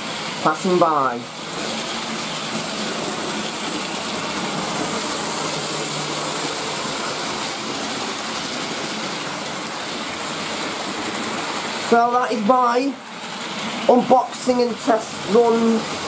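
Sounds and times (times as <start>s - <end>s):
model train motors whirring: 1.3s - 12.0s
wheels running over track: 1.4s - 12.6s.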